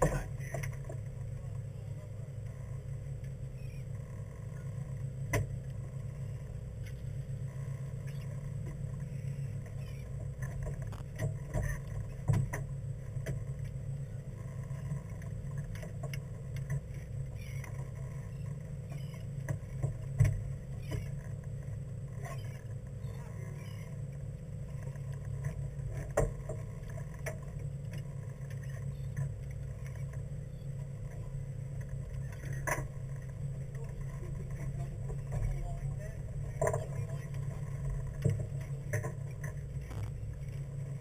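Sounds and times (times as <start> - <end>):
boat engine humming: 0.0 - 41.0.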